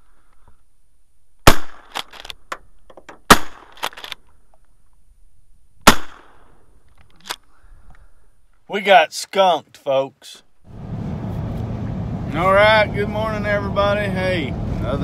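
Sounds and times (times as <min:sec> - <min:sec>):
shotgun shots: 0:01.4 - 0:02.2, 0:03.2 - 0:04.0, 0:05.8 - 0:06.5.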